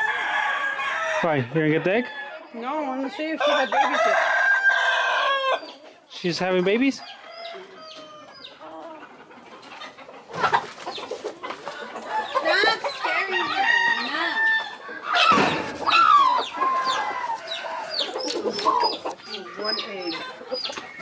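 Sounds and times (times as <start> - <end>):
chickens clucking: 0.0 - 21.0
rooster crowing: 3.3 - 5.7, 12.1 - 19.0.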